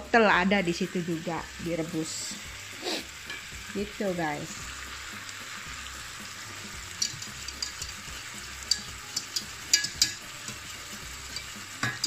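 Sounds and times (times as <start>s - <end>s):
steak sizzling in oil: 0.0s - 12.0s
sharp popping oil: 3.1s - 12.0s.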